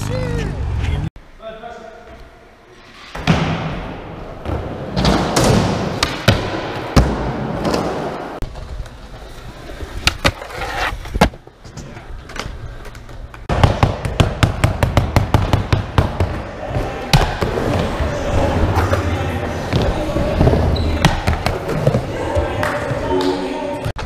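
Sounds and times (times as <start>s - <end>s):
skateboard popping and landing: 9.9s - 11.7s.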